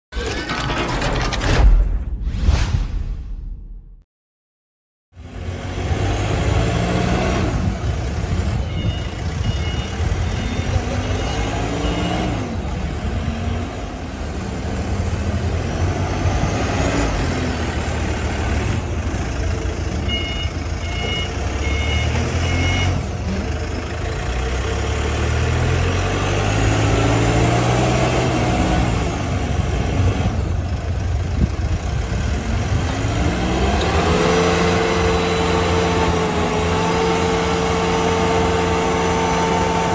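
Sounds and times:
diesel engine revving: 5.2s - 39.9s
reversing alarm beeps: 8.6s - 12.3s, 20.1s - 23.0s.

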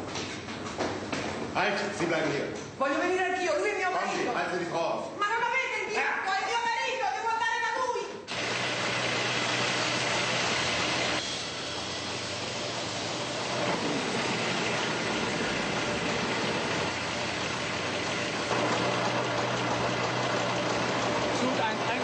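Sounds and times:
blower rushing noise: 8.3s - 22.0s.

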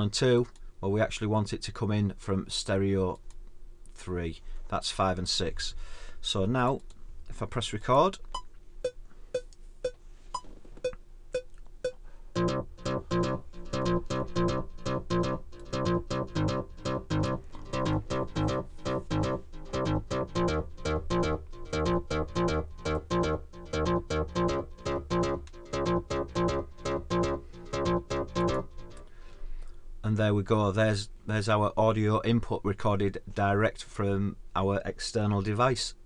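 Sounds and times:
metronome clicks: 8.2s - 29.1s
synthesizer sequenced pattern with bass: 8.3s - 29.1s.

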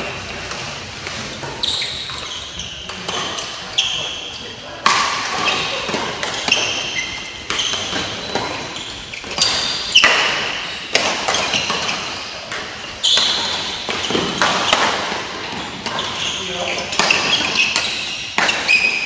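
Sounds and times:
shoes squeaking on court floor: 0.0s - 19.0s
racket striking shuttlecock: 4.8s - 16.2s, 16.9s - 19.0s.

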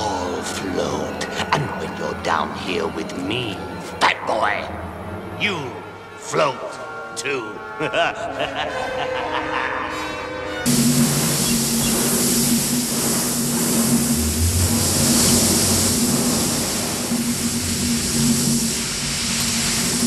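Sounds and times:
low droning hum: 0.0s - 20.0s
shower water hissing: 10.6s - 20.0s.

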